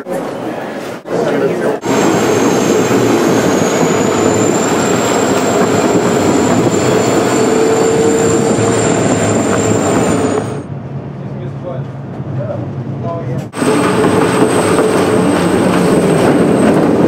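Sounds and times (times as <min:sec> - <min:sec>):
train wheels rumbling on rails: 0:01.2 - 0:17.0
high-pitched wheel squeal: 0:01.8 - 0:10.7
low squeal tone: 0:01.8 - 0:10.7.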